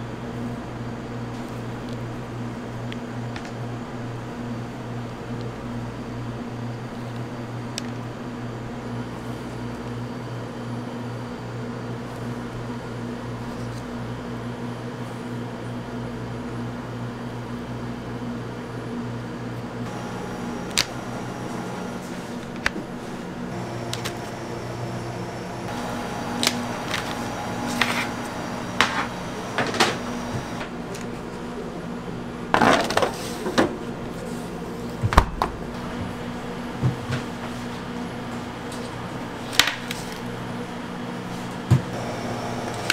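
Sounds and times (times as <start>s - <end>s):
low machine hum: 19.6s - 32.5s, 33.8s - 42.9s.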